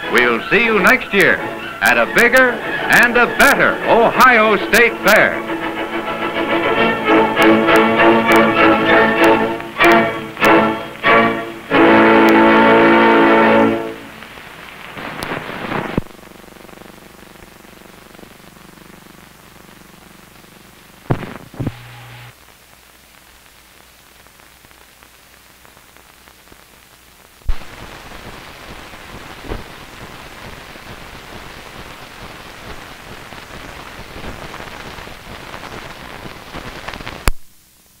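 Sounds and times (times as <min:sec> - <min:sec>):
film soundtrack crackle: 0:00.0 - 0:38.0
low hum and hiss: 0:00.0 - 0:38.0
sharp pops: 0:21.1 - 0:21.8.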